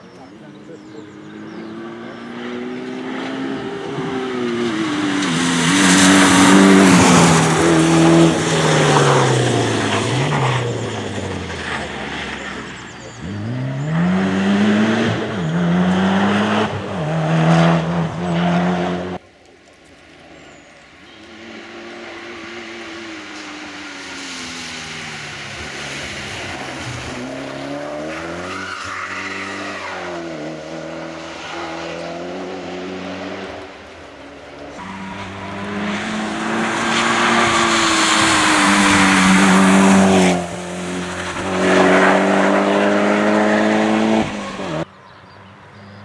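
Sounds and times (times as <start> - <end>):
car approaching on wet tarmac: 0.0 - 46.0
rally car engine accelerating: 0.4 - 19.2, 34.6 - 44.9.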